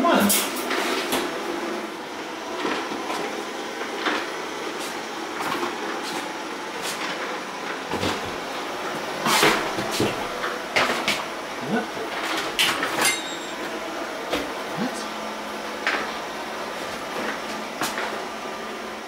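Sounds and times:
footsteps on tiled floor: 0:02.6 - 0:11.3, 0:15.8 - 0:18.4.

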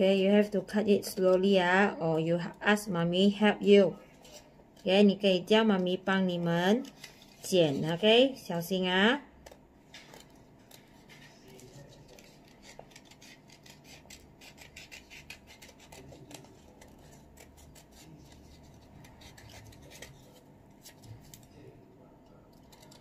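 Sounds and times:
scissors snipping paper: 0:09.4 - 0:21.6, 0:22.5 - 0:23.0.

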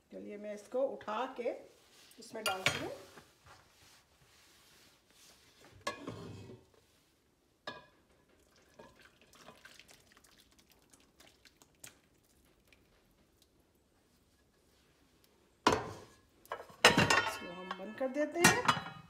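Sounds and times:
thick gravy pouring and dripping: 0:08.0 - 0:15.3.

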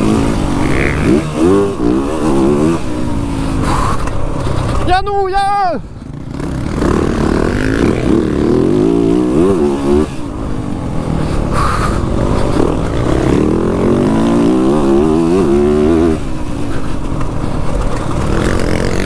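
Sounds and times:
motocross bike engine revving: 0:00.0 - 0:04.9, 0:06.1 - 0:16.8, 0:17.8 - 0:19.0.

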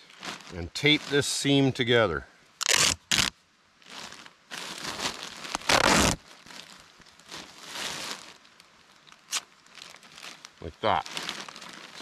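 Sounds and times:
duct tape pulled off roll: 0:02.6 - 0:03.4, 0:05.5 - 0:06.2, 0:09.3 - 0:09.5
plastic bag crinkling: 0:02.6 - 0:12.0.

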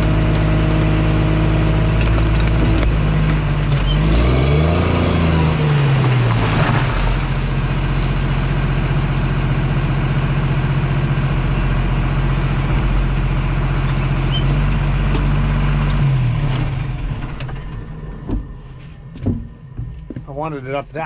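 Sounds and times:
dozer diesel engine working: 0:00.0 - 0:21.0
tree crashing: 0:04.1 - 0:08.2.

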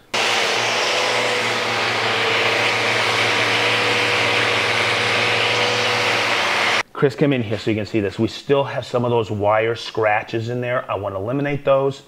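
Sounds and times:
dust extractor hum: 0:00.0 - 0:06.8
sander on wood: 0:00.0 - 0:06.8.

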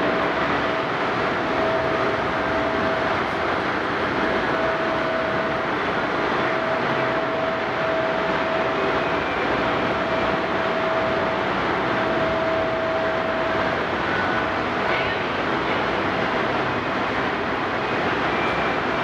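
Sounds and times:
steady rushing noise: 0:00.0 - 0:19.0.

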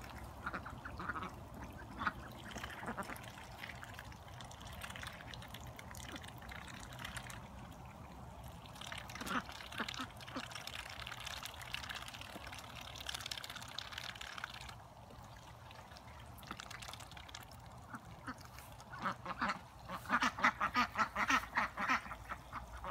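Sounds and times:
ducks quacking: 0:00.1 - 0:03.9, 0:09.0 - 0:11.0, 0:17.8 - 0:22.9
water hissing from garden hose: 0:08.6 - 0:14.8.

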